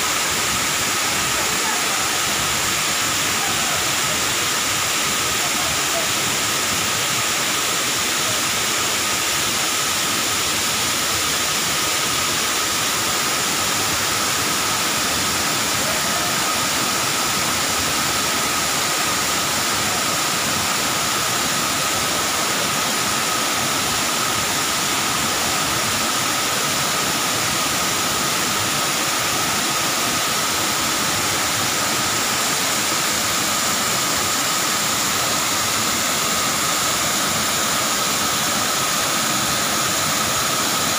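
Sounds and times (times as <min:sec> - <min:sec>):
waterfall rushing: 0:00.0 - 0:40.9.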